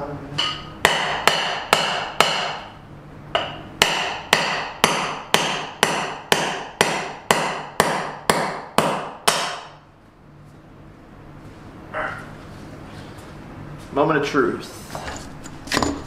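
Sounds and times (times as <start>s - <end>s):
hammer striking metal: 0.4s - 9.8s.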